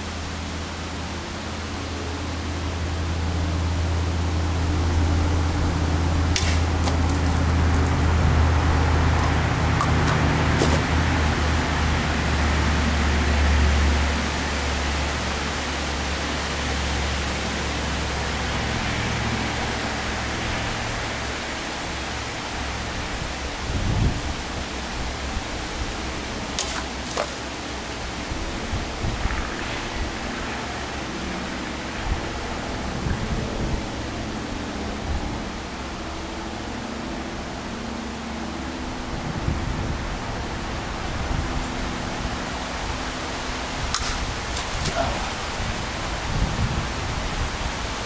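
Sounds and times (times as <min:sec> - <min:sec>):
low outdoor rumble: 0:00.0 - 0:48.0
sword slicing plastic bottles: 0:06.3 - 0:07.4, 0:09.8 - 0:10.9, 0:26.6 - 0:27.5.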